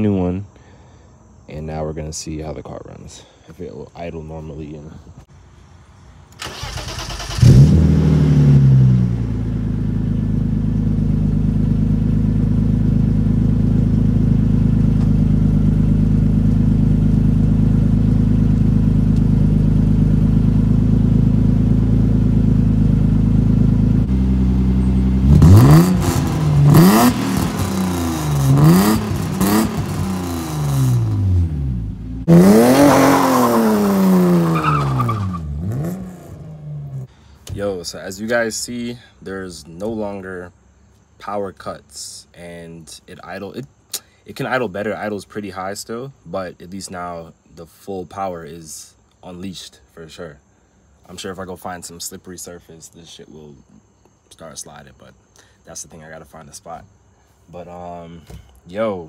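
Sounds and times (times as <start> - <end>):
car engine cranking and idling: 6.3 - 37.1
engine revving: 6.4 - 37.1.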